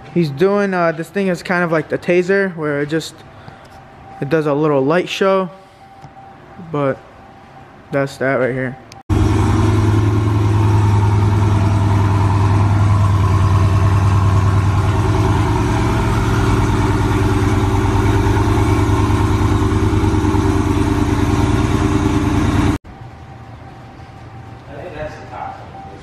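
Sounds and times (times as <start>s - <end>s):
car engine idling loudly: 9.1s - 22.8s.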